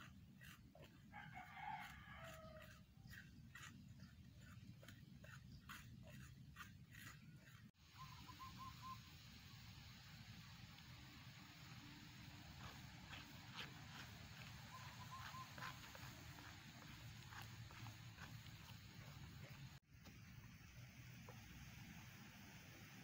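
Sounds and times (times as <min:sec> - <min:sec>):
stick scraping a metal wok: 0:00.0 - 0:07.7
rooster crowing: 0:01.1 - 0:02.8
steady hiss: 0:07.8 - 0:14.8, 0:15.8 - 0:23.0
faint bird chirps: 0:07.9 - 0:09.6, 0:14.7 - 0:16.5.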